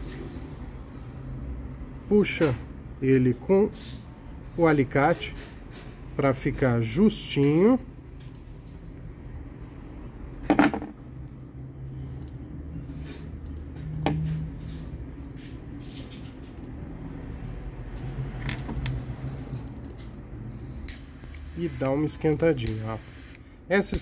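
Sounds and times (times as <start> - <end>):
pliers knocking on wooden table: 10.5 - 10.9
faint clicks and rustles of wire: 17.4 - 22.9.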